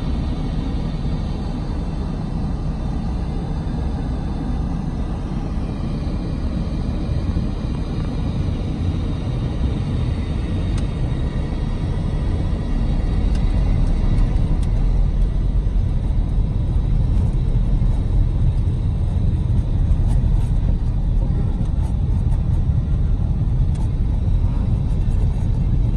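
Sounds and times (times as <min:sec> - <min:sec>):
car driving on snowy road: 0:07.3 - 0:25.9.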